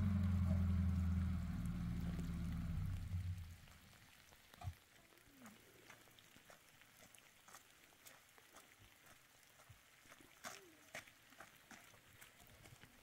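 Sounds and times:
vehicle engine humming: 0.0s - 3.8s.

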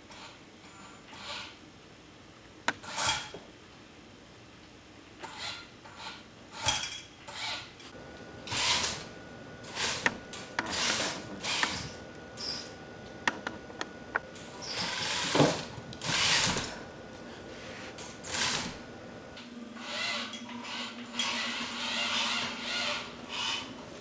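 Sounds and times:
robot motors whining: 8.4s - 13.1s, 14.1s - 17.3s, 17.9s - 23.6s
sharp clicks and knocks: 9.9s - 17.2s.

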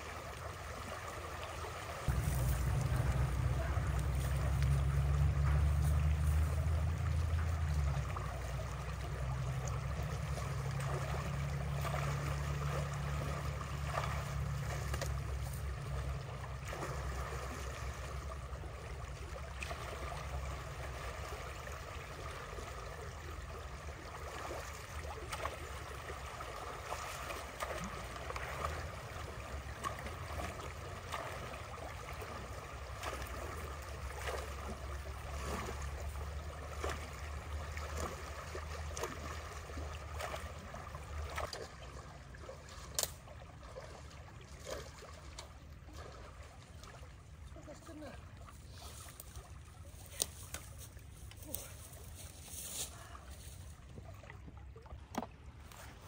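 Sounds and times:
creek water rushing and gurgling: 0.0s - 56.0s
low rumble: 2.1s - 19.1s.

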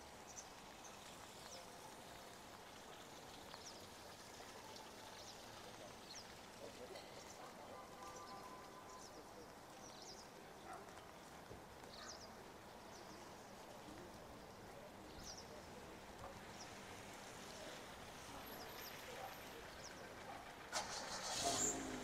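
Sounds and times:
rain hiss: 0.0s - 22.0s
small birds chirping: 8.1s - 11.2s
car engine starting and idling: 20.7s - 22.0s.

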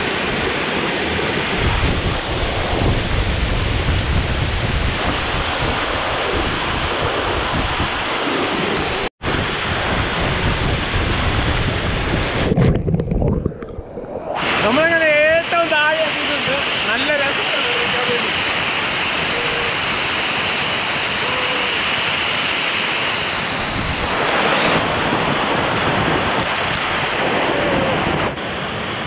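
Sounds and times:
wind buffeting microphone: 0.0s - 14.9s, 23.2s - 29.0s
waterfall rushing into pool: 14.4s - 29.0s.

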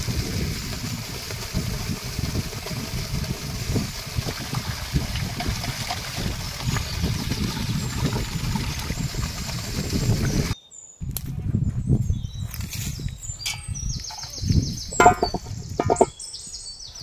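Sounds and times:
water gushing from pipe: 0.0s - 10.6s
water splashing into pot: 0.0s - 10.6s, 15.0s - 16.1s.

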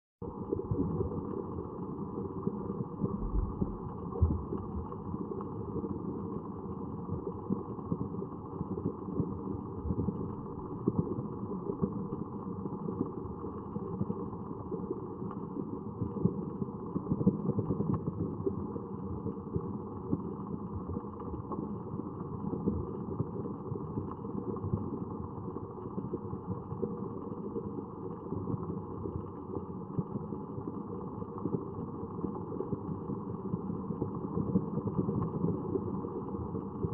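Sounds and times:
muffled low rumble: 3.0s - 5.1s.

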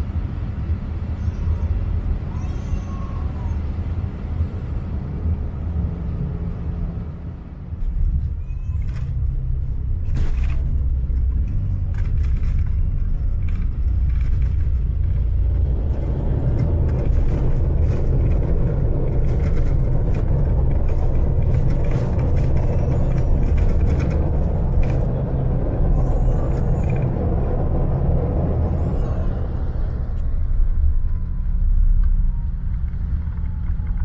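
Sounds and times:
low rumble of jet engines: 0.0s - 34.0s.

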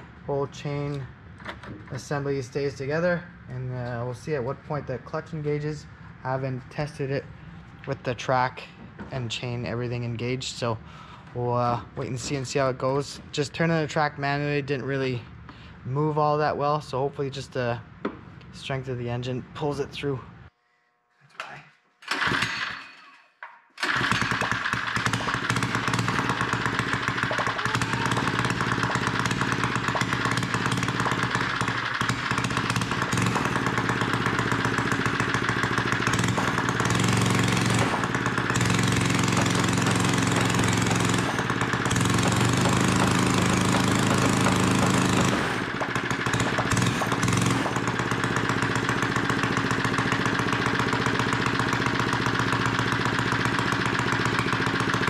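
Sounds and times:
small engine starting and running: 22.0s - 23.0s, 23.8s - 55.0s.

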